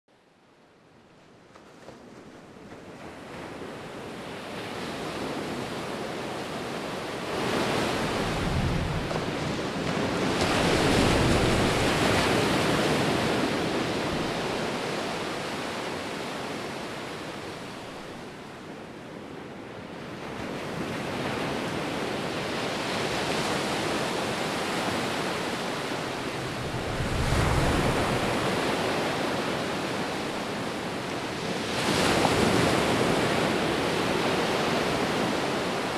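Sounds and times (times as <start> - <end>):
surf breaking on rocky shore: 7.2 - 14.8, 26.1 - 30.2.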